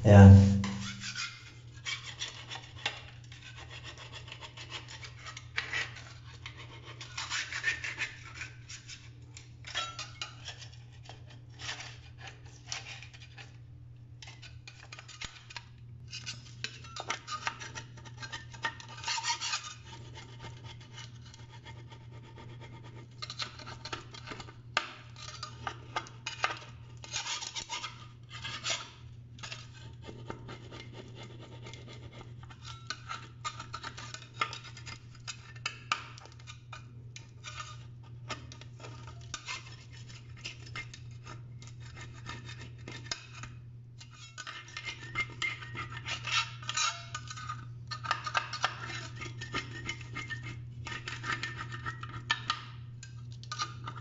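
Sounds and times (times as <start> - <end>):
steady low hum: 0.0 - 1.1.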